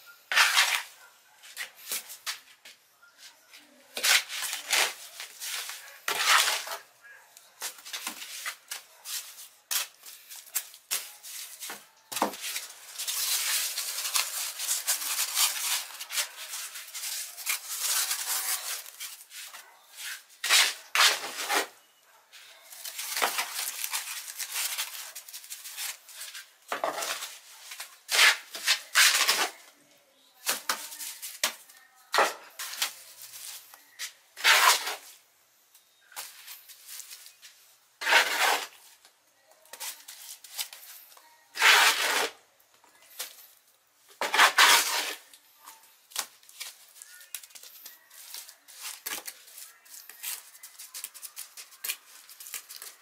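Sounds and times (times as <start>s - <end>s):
scraping and rubbing: 0.3s - 2.4s, 4.0s - 6.9s, 7.6s - 21.8s, 22.7s - 29.6s, 34.4s - 35.2s, 38.0s - 38.9s, 41.6s - 42.4s, 44.2s - 45.3s.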